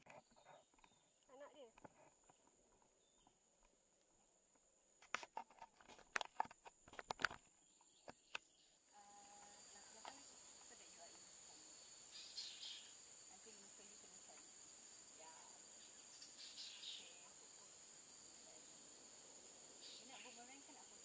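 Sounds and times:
sharp clicks and crackles: 5.0s - 8.5s.

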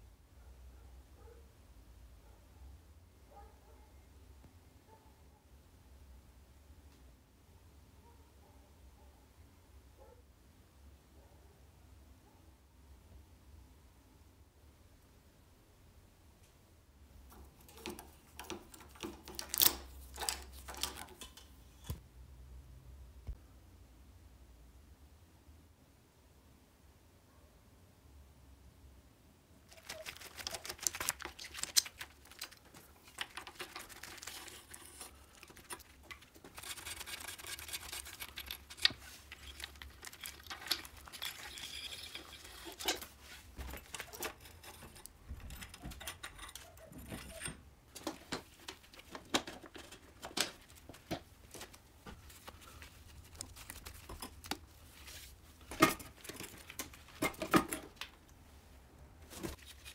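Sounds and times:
metal tools clicking and tapping: 17.3s - 22.0s, 31.2s - 43.1s, 43.7s - 51.2s
rubbing: 29.7s - 45.1s.

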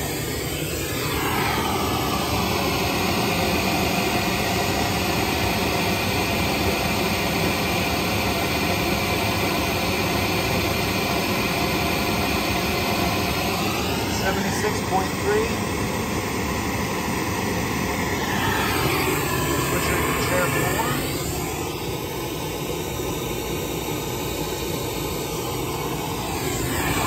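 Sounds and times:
pink noise through speaker: 13.8s - 15.6s, 18.2s - 21.6s.

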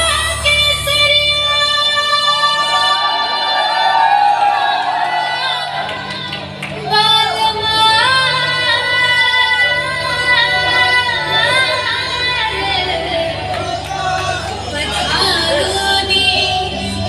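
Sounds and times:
woman singing with music: 0.0s - 17.0s.

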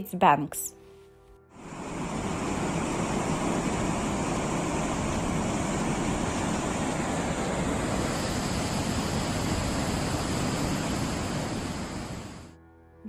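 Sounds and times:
floodwater rushing over weir: 2.0s - 12.4s.

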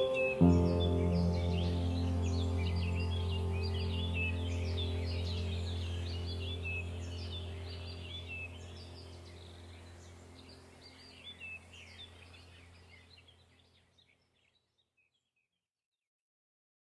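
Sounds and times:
low steady hum: 0.0s - 13.6s
birds chirping: 0.0s - 15.3s.

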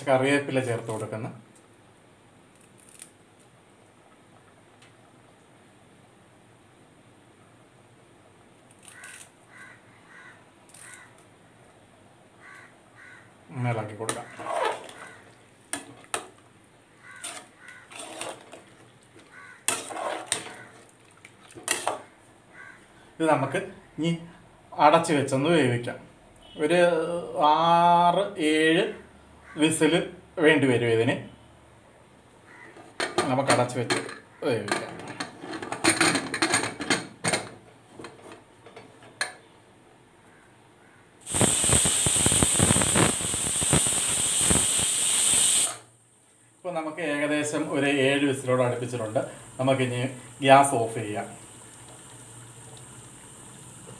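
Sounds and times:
metal spoon scraping a pot: 14.1s - 15.1s, 17.2s - 18.7s, 19.6s - 20.9s, 21.6s - 22.0s
pressure cooker steam hissing: 41.2s - 45.9s, 49.0s - 53.9s.

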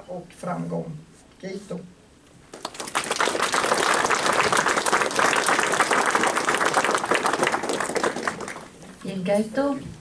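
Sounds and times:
audience applauding: 2.5s - 8.9s.

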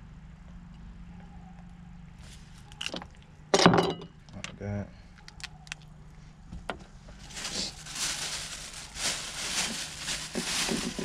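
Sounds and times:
plastic bag rustling: 7.1s - 11.0s.

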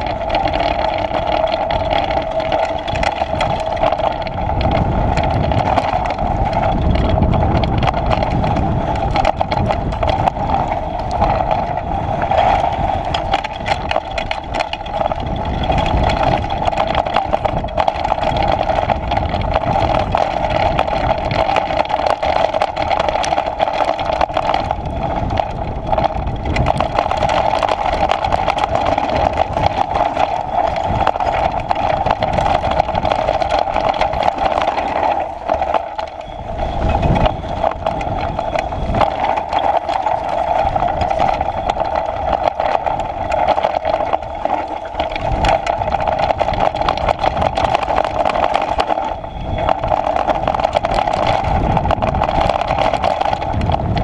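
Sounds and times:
bike rattling over stones: 0.0s - 54.0s
tyre rumble: 0.0s - 54.0s
wind noise: 0.0s - 54.0s.

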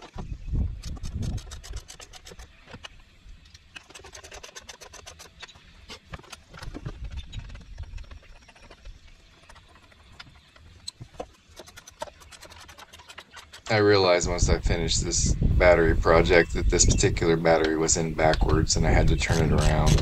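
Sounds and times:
metal cables clicking and clinking: 3.5s - 13.7s.

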